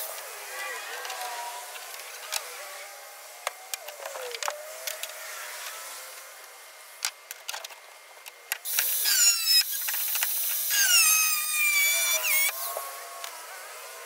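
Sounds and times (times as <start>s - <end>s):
angle grinder cutting steel: 8.7s - 12.9s.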